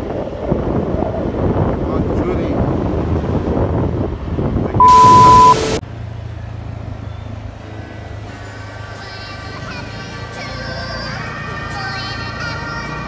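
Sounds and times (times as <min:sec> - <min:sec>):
wind and road noise: 0:00.0 - 0:13.0
low hum: 0:04.8 - 0:05.8.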